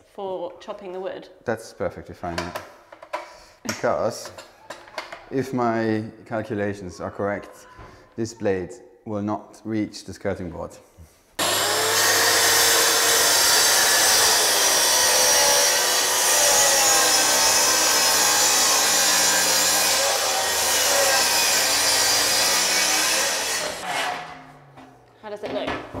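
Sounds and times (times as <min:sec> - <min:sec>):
track saw cutting wood: 0:11.4 - 0:24.7.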